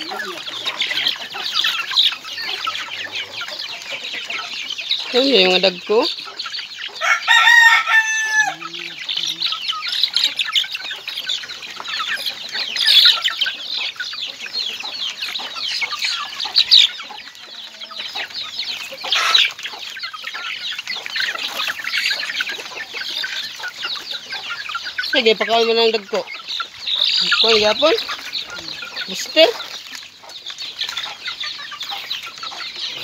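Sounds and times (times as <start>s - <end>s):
chickens clucking and peeping: 0.0s - 33.0s
rooster crowing: 7.0s - 9.0s.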